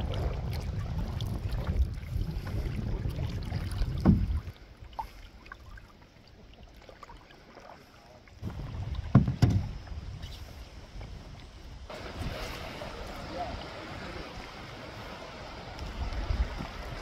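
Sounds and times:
wind rumble on microphone: 0:00.0 - 0:04.6, 0:08.4 - 0:17.0
water splashing: 0:00.0 - 0:17.0.

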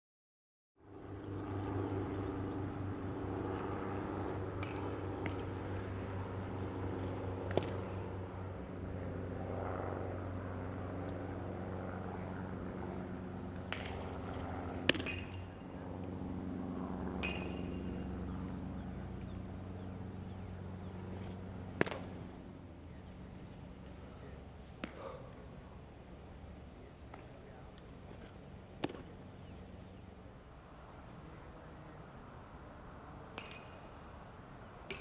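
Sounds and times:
steady low hum: 0:00.8 - 0:35.0
baseball striking leather or bat: 0:07.0 - 0:07.8, 0:13.6 - 0:15.4, 0:17.2 - 0:17.8, 0:21.7 - 0:22.2, 0:28.8 - 0:29.1.

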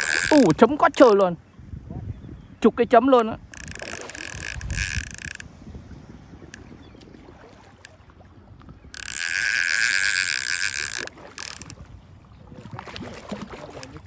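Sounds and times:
fishing reel whirring: 0:00.0 - 0:01.4, 0:03.4 - 0:05.5, 0:08.8 - 0:11.9.

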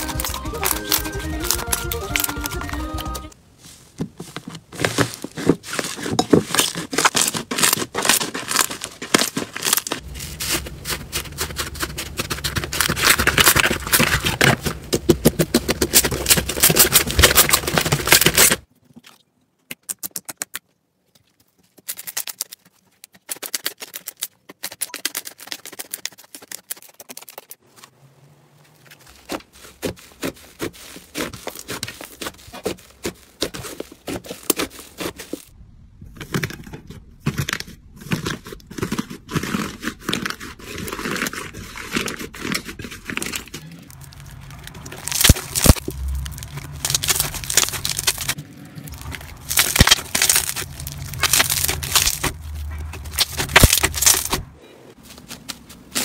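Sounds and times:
slime crackling and popping: 0:00.0 - 0:03.2, 0:06.5 - 0:18.7, 0:42.0 - 0:54.4.

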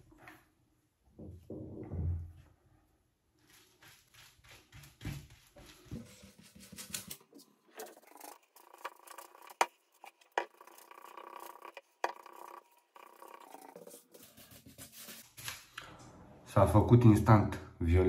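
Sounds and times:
handling rustling and rubbing: 0:03.3 - 0:15.7.

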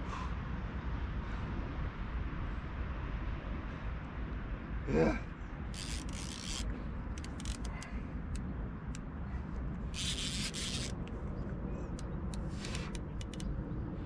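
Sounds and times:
steady low rumble: 0:00.0 - 0:14.0
fishing reel clicks: 0:05.8 - 0:07.9, 0:10.0 - 0:11.1, 0:12.0 - 0:13.5
short scraping rasps: 0:05.8 - 0:08.0, 0:10.0 - 0:11.1, 0:12.3 - 0:13.5.

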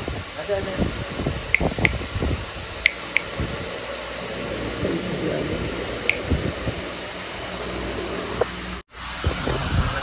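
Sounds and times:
room fan whirring: 0:00.0 - 0:10.0
sharp clicks: 0:01.5 - 0:02.0, 0:02.8 - 0:03.3, 0:06.1 - 0:06.3.

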